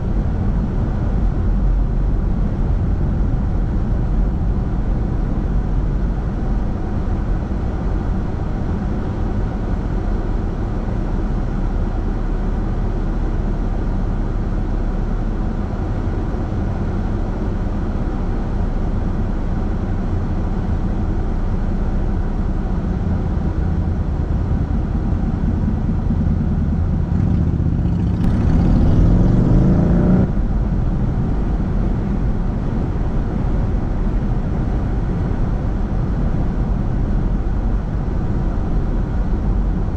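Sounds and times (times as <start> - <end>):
car engine and road noise: 0.0 - 39.9
engine accelerating: 22.8 - 39.9.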